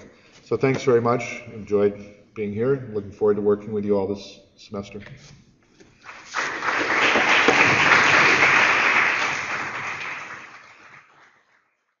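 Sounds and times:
audience applauding: 6.0 - 11.6.

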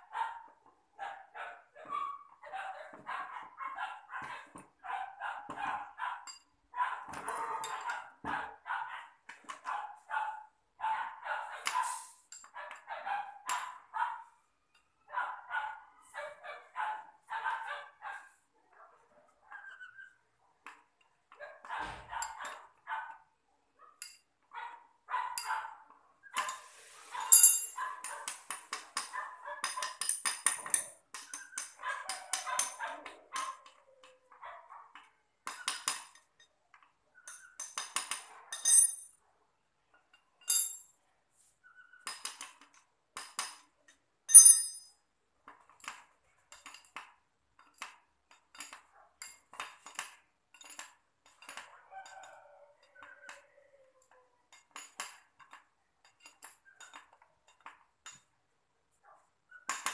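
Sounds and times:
hand tools clinking on metal: 7.1 - 8.1, 26.4 - 34.2, 35.4 - 39.2, 40.1 - 40.9, 42.0 - 45.0, 47.6 - 53.4, 54.0 - 58.3, 59.7 - 59.9.

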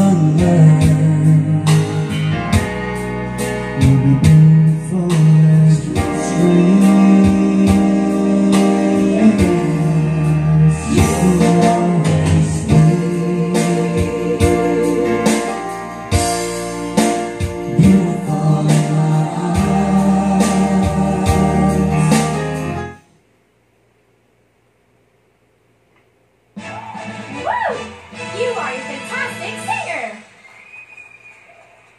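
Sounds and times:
karaoke song with singing: 0.0 - 23.0.

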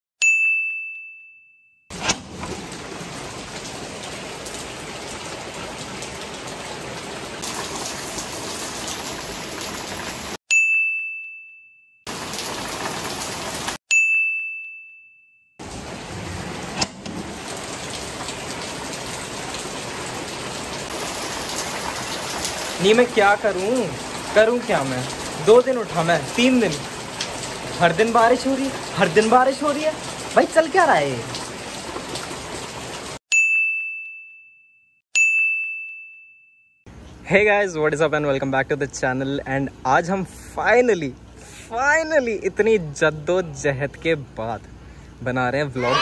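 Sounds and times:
bright ding chimes: 0.2 - 1.8, 10.5 - 11.9, 13.9 - 15.4, 33.3 - 36.8
steady rain: 2.2 - 10.4, 12.1 - 13.8, 15.6 - 33.2.

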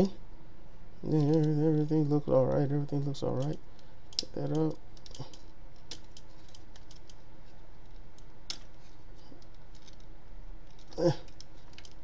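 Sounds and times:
plastic toy parts clicking: 2.8 - 7.2, 7.8 - 8.8, 9.4 - 12.0.

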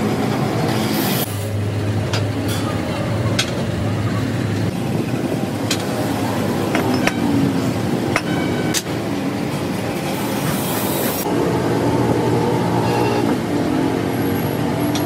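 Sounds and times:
steady background rumble: 0.0 - 10.4.

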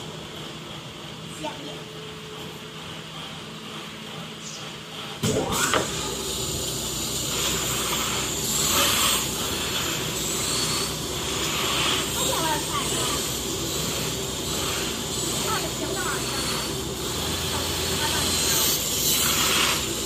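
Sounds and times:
cutting machine whirring: 4.4 - 20.0.

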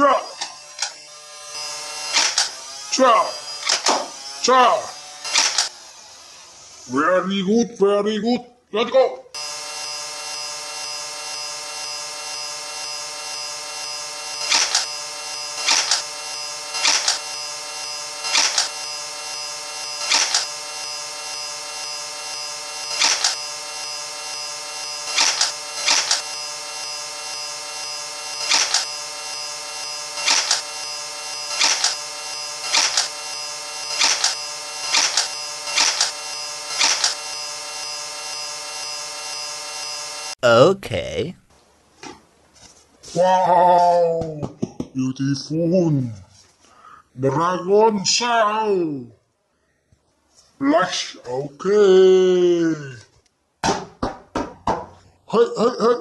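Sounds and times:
toy blaster clacks: 0.4 - 1.0, 2.1 - 2.6, 3.6 - 4.1, 5.2 - 5.8, 14.4 - 15.0, 15.6 - 16.1, 16.7 - 17.3, 18.2 - 18.8, 20.0 - 20.6, 22.9 - 23.5, 25.1 - 26.3, 28.4 - 28.9, 30.2 - 30.8, 31.5 - 32.0, 32.6 - 33.2, 33.9 - 37.3.

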